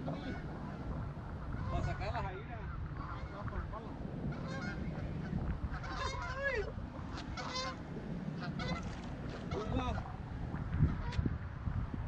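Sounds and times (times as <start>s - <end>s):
geese honking: 0.0s - 0.9s, 1.5s - 3.5s, 4.3s - 10.1s.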